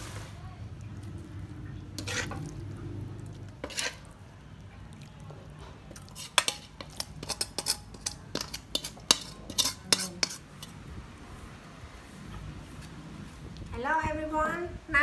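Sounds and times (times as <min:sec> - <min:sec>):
utensil scraping and clinking on metal: 0:01.9 - 0:02.7, 0:03.3 - 0:04.2, 0:05.6 - 0:10.8.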